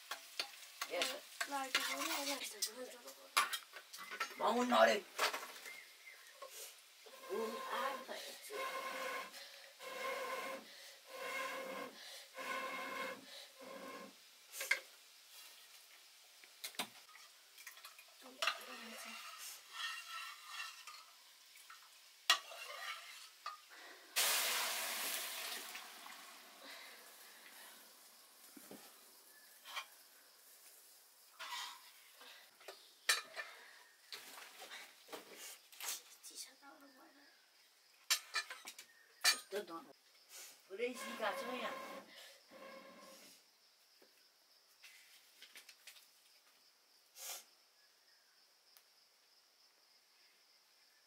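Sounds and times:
wok sizzling: 0.0s - 33.4s, 40.3s - 43.2s
blowing through metal pipe: 7.1s - 14.1s, 40.9s - 43.2s.

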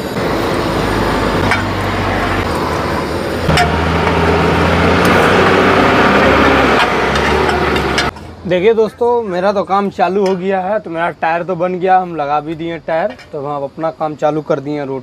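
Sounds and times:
engine low hum: 0.0s - 8.4s
higher hum: 0.2s - 8.1s.

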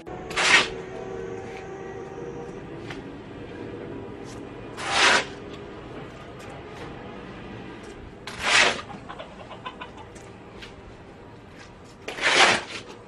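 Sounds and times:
shovel scraping wet mud on concrete: 0.3s - 0.9s, 4.2s - 5.6s, 8.2s - 9.0s, 11.6s - 13.0s
chickens clucking: 8.6s - 11.0s.

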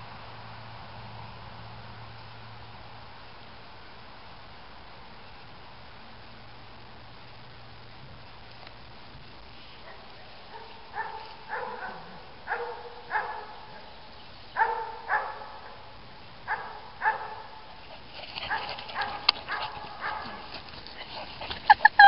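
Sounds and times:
rustling in grass and brush: 0.0s - 12.5s, 17.6s - 22.0s
puppy giving high barks: 10.5s - 13.7s, 14.6s - 15.6s, 16.5s - 17.6s.

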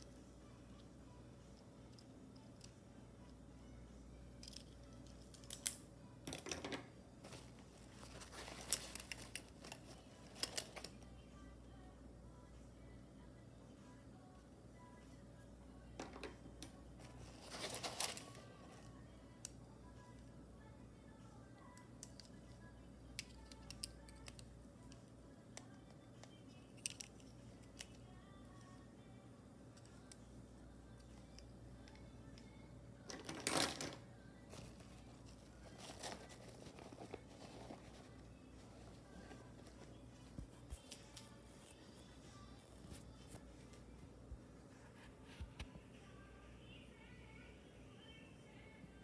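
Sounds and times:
faint pop music: 0.0s - 49.0s
plastic pens clicking together: 4.3s - 6.8s, 21.7s - 22.5s, 23.1s - 28.0s
plastic pens clicking and rattling: 4.3s - 11.0s, 23.1s - 28.0s, 33.1s - 38.2s.

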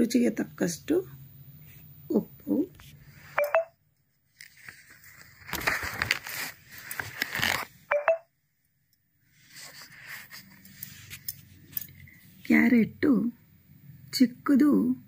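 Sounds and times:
paper pages rustling: 4.2s - 7.8s, 9.4s - 11.5s.

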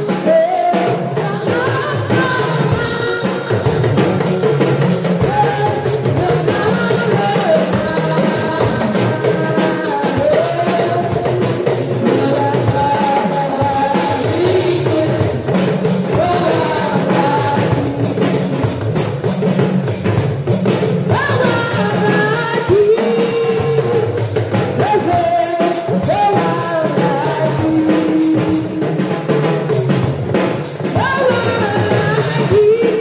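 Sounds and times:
drum kit: 0.0s - 33.0s
live band playing: 0.0s - 33.0s
person singing into microphone: 0.0s - 33.0s.

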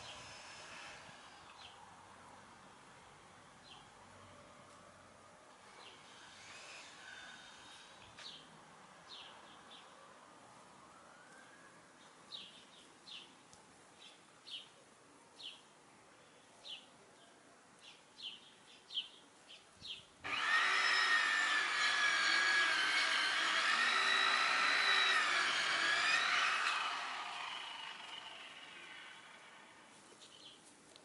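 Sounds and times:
machine motor whining: 20.3s - 29.8s
small birds chirping: 29.9s - 30.7s.

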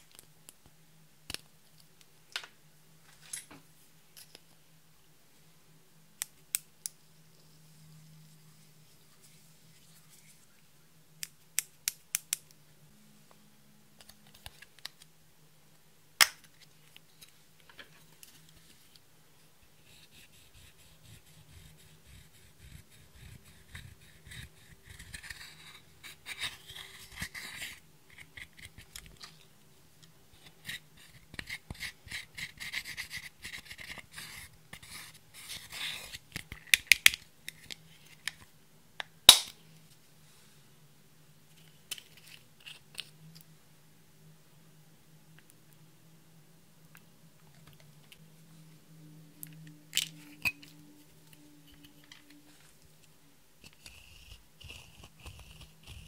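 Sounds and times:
spatula scraping eyeshadow: 53.6s - 56.0s.

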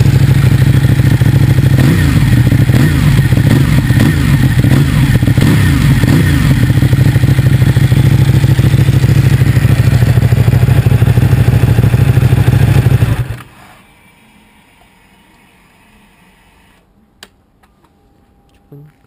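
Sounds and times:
motorcycle engine idling: 0.0s - 13.4s.

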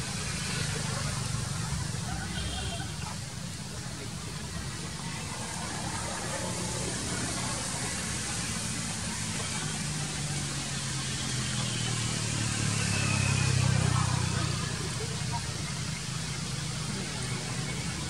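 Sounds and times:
constant hiss: 0.0s - 18.0s.

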